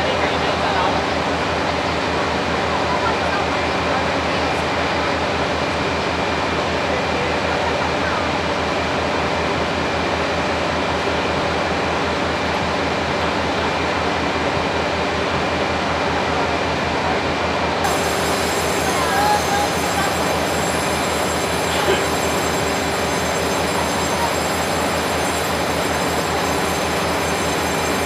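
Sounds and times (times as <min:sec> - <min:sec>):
diesel locomotive idling: 0:00.0 - 0:28.0.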